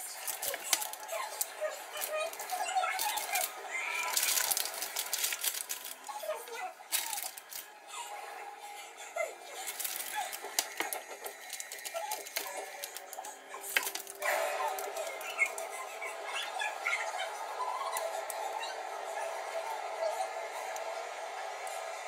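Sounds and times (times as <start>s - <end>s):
parchment paper crinkling: 0.0s - 7.7s, 9.6s - 17.0s.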